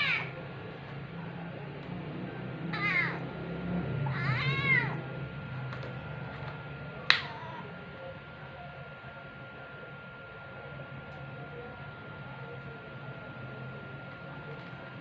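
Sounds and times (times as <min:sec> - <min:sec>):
kitten meowing: 0:04.1 - 0:05.0.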